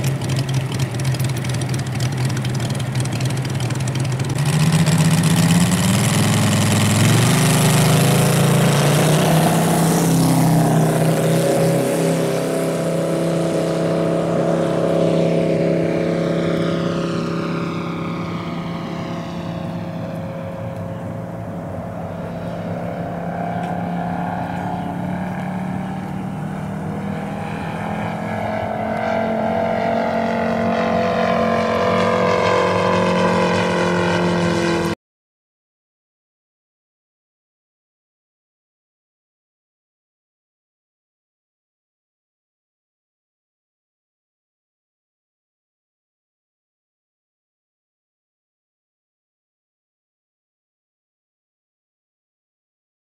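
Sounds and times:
model aircraft radial engine: 0:00.0 - 0:35.0.

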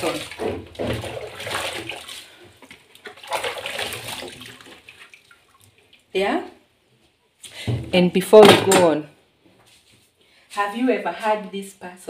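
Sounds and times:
water splashing in sink: 0:00.0 - 0:06.3.

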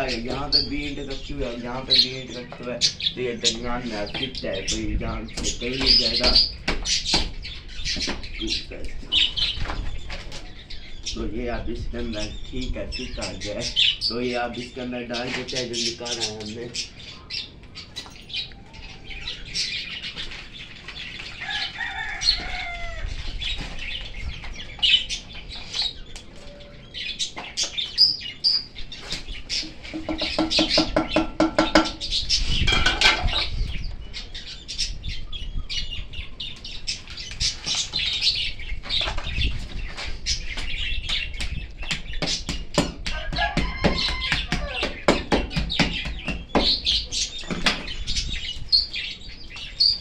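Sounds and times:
birds chirping and calling: 0:00.0 - 0:50.0.

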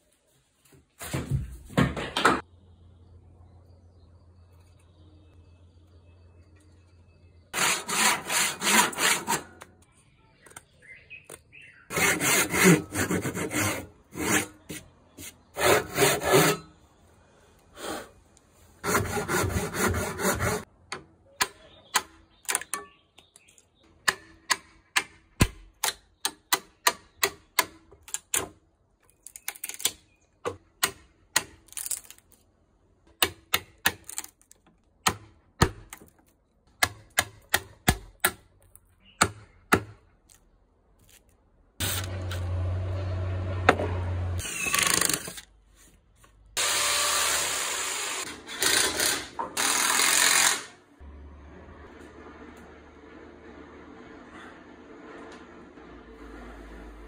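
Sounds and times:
handsaw cutting wood: 0:07.6 - 0:09.6, 0:11.9 - 0:16.7, 0:18.8 - 0:20.7
chisel chopping wood: 0:35.0 - 0:36.0, 0:36.8 - 0:38.5, 0:39.2 - 0:40.0.

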